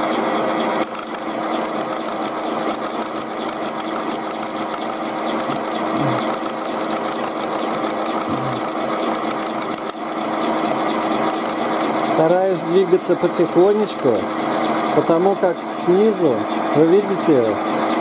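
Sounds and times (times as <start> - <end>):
milling machine motor hum: 0.0 - 18.0
cutter ticking on tin can: 0.8 - 12.3, 13.2 - 15.0.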